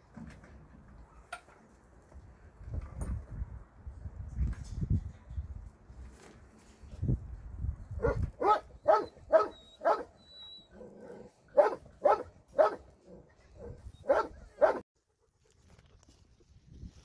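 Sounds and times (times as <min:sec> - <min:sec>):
dog barking: 0:08.0 - 0:10.1, 0:11.5 - 0:12.9, 0:13.6 - 0:14.8.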